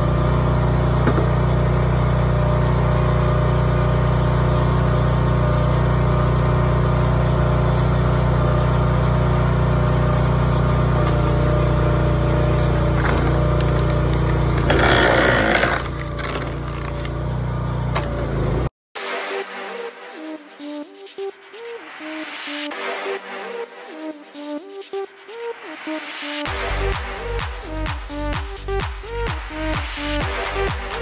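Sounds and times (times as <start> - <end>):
small gas engine running: 0.0 - 18.7
wood splitting crackle: 12.2 - 17.2.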